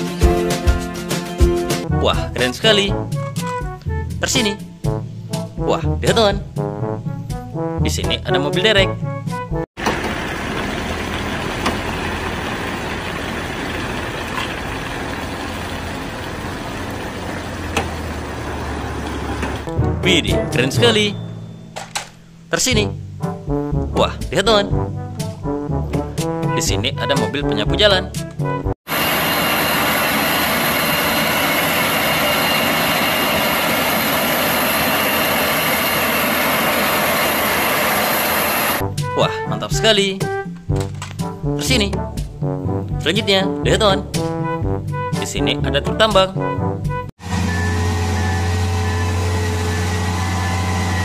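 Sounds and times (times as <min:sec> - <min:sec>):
street sweeper truck rushing: 0:09.8 - 0:19.7, 0:28.9 - 0:38.8, 0:47.2 - 0:51.0
diesel engine droning: 0:09.8 - 0:21.8, 0:28.9 - 0:38.8, 0:47.2 - 0:51.0
faint high whine: 0:28.9 - 0:38.8.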